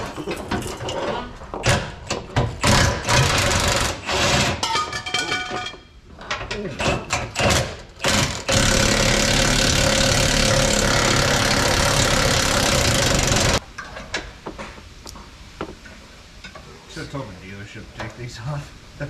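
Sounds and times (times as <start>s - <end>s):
impact wrench hammering: 7.4s - 13.6s.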